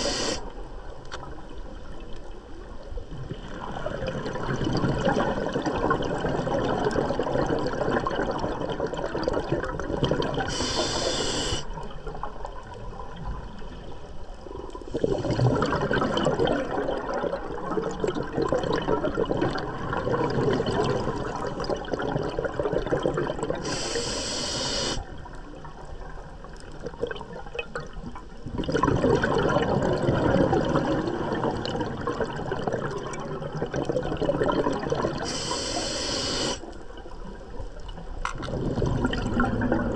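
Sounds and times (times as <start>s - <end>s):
regulator inhalation hiss: 0.0s - 0.5s, 10.5s - 11.7s, 23.6s - 25.1s, 35.2s - 36.6s
exhaled bubbles rushing: 3.2s - 10.8s, 14.8s - 23.9s, 26.7s - 35.3s, 38.3s - 39.9s.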